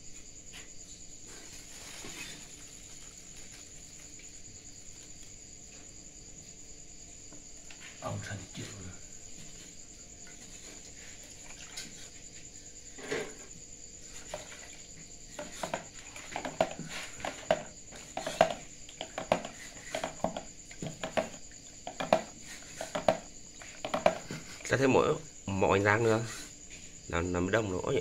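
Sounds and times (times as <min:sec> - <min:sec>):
crickets chirring: 0:00.0 - 0:28.0
metal spoon scraping plastic tub: 0:15.3 - 0:24.7.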